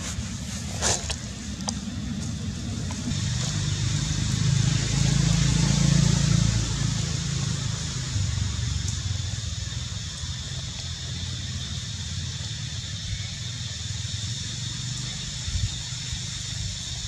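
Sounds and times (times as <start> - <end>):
low rumble: 0.0 - 11.6
steady high hiss: 0.0 - 17.0.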